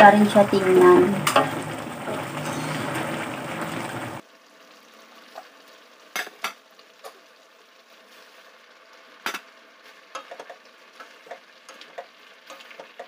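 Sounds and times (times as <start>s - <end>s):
vegetables sizzling in a wok: 0.0s - 13.0s.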